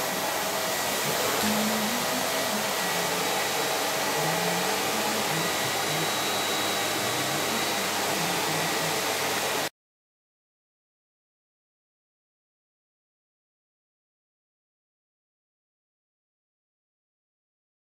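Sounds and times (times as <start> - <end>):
vacuum cleaner running: 0.0 - 9.7
vacuum nozzle on tiled floor: 0.0 - 9.7.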